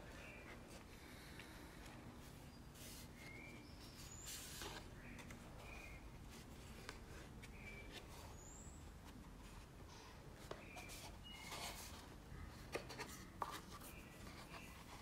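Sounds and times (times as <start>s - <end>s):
paper pages turning: 2.8s - 8.4s.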